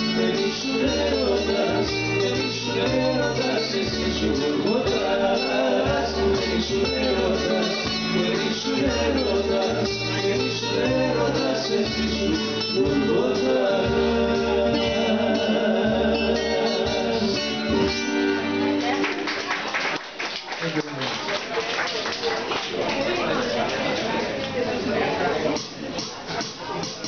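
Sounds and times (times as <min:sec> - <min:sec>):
man singing into a microphone: 0:00.0 - 0:17.9
bass line: 0:00.0 - 0:18.9
keyboard: 0:00.0 - 0:19.3
electric-acoustic guitars: 0:00.0 - 0:19.7.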